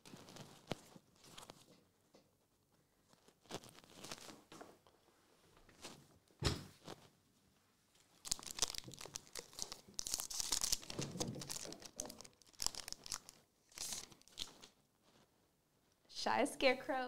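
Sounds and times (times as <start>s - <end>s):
wrapper tearing and crinkling: 3.2s - 4.3s, 8.2s - 14.8s.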